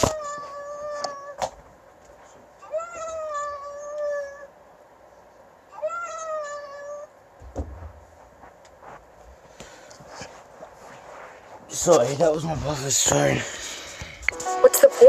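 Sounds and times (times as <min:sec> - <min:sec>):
cat meowing: 0:00.0 - 0:01.4, 0:02.6 - 0:04.5, 0:05.7 - 0:07.1
thump: 0:07.4 - 0:08.0.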